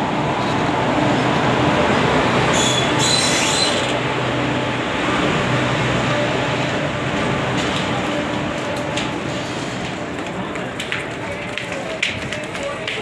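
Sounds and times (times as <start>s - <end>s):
train wheels rumbling on rail: 0.0s - 13.0s
high wheel squeal: 2.5s - 4.0s.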